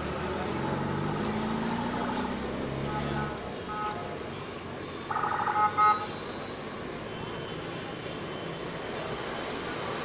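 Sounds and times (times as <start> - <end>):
street traffic noise: 0.0 - 10.0
vehicle horn tooting: 2.8 - 4.0.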